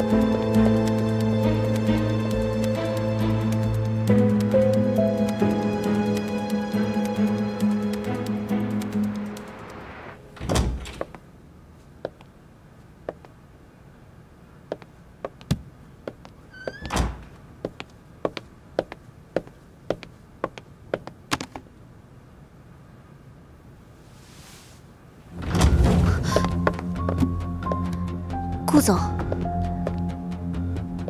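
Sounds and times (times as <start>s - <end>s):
door squeaking and shutting: 10.4s - 11.2s, 16.4s - 17.4s, 25.3s - 26.3s
footsteps on hard floor: 26.3s - 27.8s, 29.2s - 30.1s.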